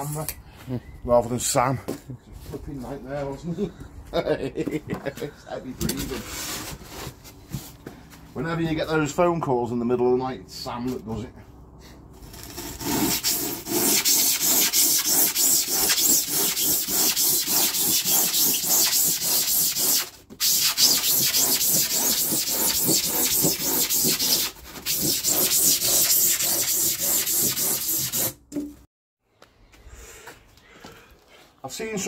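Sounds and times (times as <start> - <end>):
hand tool scraping insulation board: 12.2 - 28.4.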